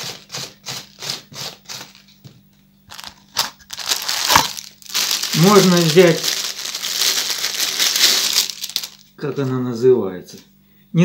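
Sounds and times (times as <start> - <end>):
shredder scraping cabbage: 0.0 - 2.1, 2.9 - 8.9
crinkly rustling: 2.9 - 9.6.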